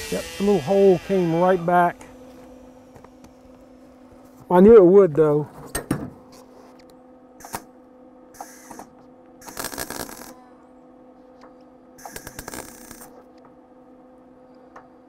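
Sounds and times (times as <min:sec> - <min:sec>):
welder arc crackling: 0:00.0 - 0:03.6, 0:09.4 - 0:10.3, 0:12.0 - 0:13.2
steady hum: 0:00.0 - 0:15.0.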